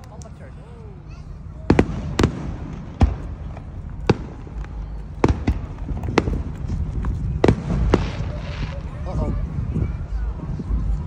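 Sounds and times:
low rumble: 0.9 - 11.0
fireworks booming: 1.6 - 9.6.

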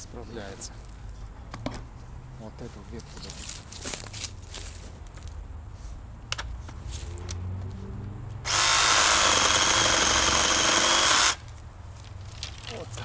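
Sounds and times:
reciprocating saw cutting branch: 8.5 - 11.4.

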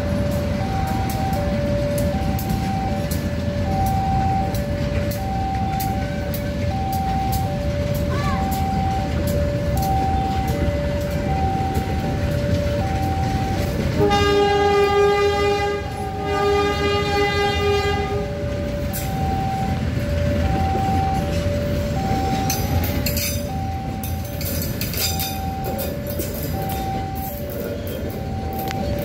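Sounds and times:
level crossing alarm: 0.0 - 29.0
train carriages rumbling: 0.0 - 29.0
wheels clicking over rail joints: 0.0 - 29.0
train horn blasts: 13.9 - 18.4.

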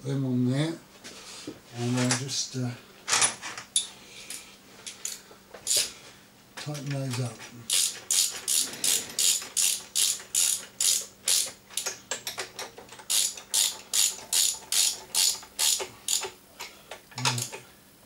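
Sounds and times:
ratchet spanner clicking: 7.6 - 16.4.

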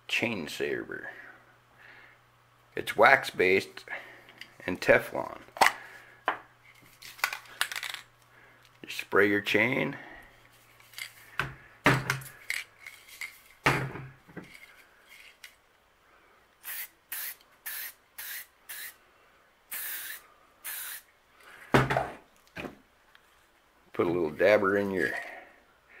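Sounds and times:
aerosol spray hissing: 16.6 - 19.0, 19.7 - 21.1.

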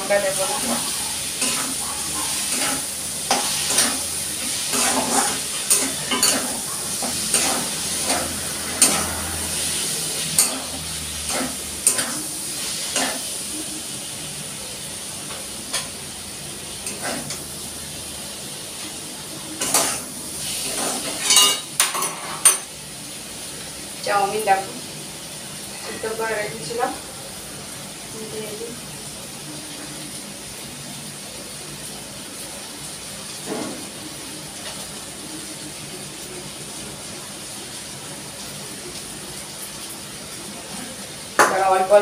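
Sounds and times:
vegetables sizzling in pan: 0.0 - 42.0
metal tongs scraping pan: 4.7 - 6.6, 7.3 - 9.3.

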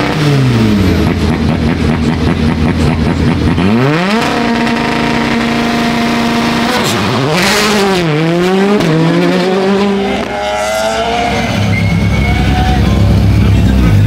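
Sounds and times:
car engine running at low revs: 0.0 - 14.0
rally car engine revving hard: 0.0 - 14.0.

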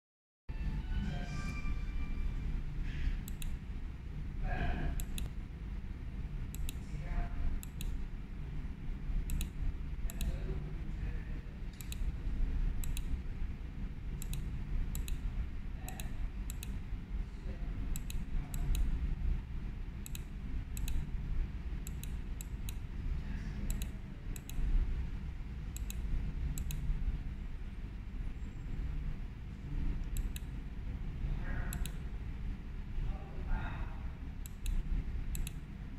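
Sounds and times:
steady low hum: 0.5 - 35.9
control clicks: 3.2 - 3.6, 4.9 - 5.4, 6.4 - 6.9, 7.6 - 8.0, 9.2 - 10.4, 11.7 - 13.2, 14.2 - 16.8, 17.9 - 19.0, 20.0 - 21.1, 21.8 - 22.9, 23.7 - 24.8, 25.7 - 27.0, 29.9 - 30.6, 31.7 - 32.1, 34.4 - 35.7.

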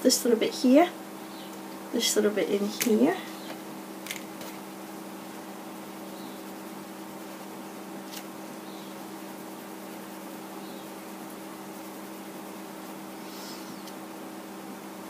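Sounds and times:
hiss: 13.1 - 14.0.

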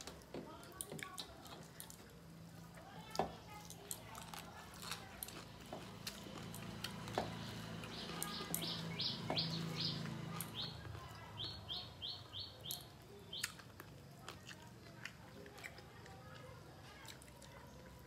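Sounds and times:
small bird chirping: 7.3 - 13.7.

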